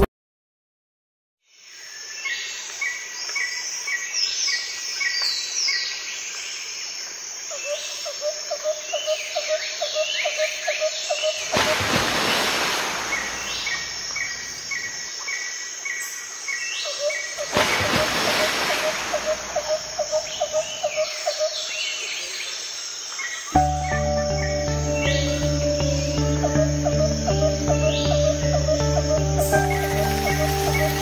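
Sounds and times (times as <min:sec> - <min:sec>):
birds chirping and whistling: 0:23.6 - 0:31.0
high insect drone: 0:23.6 - 0:31.0.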